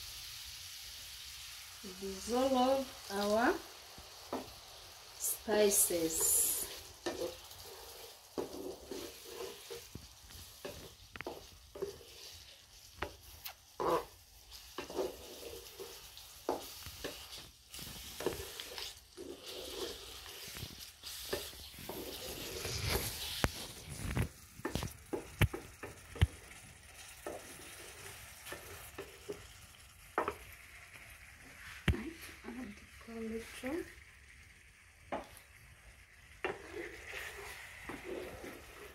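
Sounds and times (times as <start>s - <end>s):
sauce sizzling: 0.0s - 38.9s
wooden spoon scraping metal pot: 5.2s - 29.5s, 36.3s - 38.9s.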